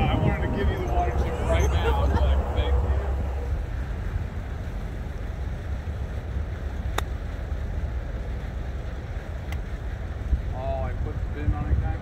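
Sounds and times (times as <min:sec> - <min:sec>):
wind rumble on microphone: 0:00.0 - 0:12.0
golf club striking ball: 0:06.9 - 0:07.2.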